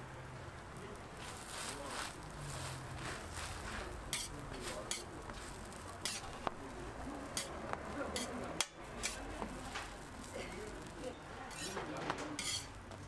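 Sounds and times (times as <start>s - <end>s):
frying sizzle: 0.0s - 13.0s
metal tongs tapping on griddle: 4.1s - 5.4s, 6.0s - 6.6s, 7.3s - 10.0s, 11.5s - 13.0s.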